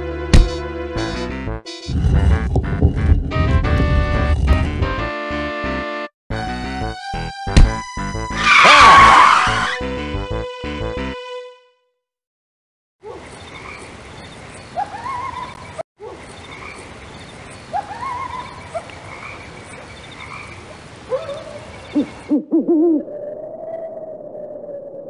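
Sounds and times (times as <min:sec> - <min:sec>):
frogs croaking: 0:16.1 - 0:22.4.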